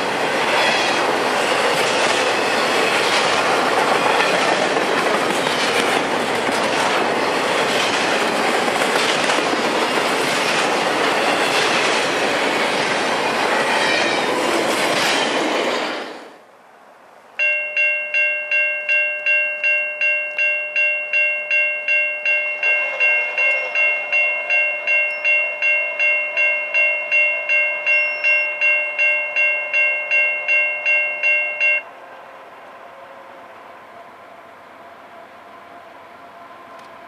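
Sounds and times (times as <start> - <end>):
railroad crossing bell ringing: 17.4 - 31.9.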